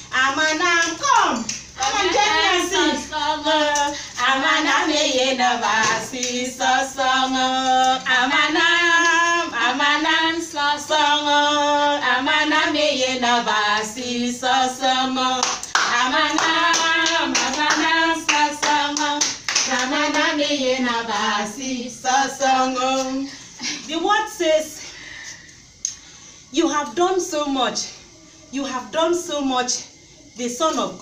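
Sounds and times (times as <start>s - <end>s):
women singing together: 0.0s - 25.4s, 26.6s - 31.0s
rhythmic hand clapping: 0.5s - 7.9s, 15.4s - 21.6s.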